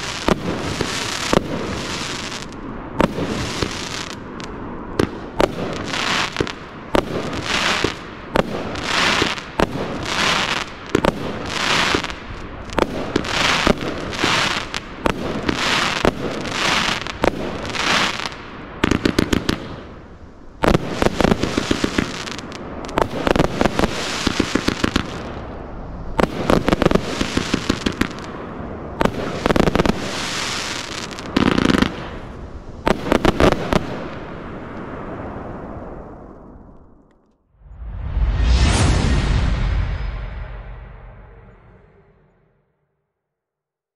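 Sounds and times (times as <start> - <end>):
firework shots bursting with hiss: 0.0 - 35.2.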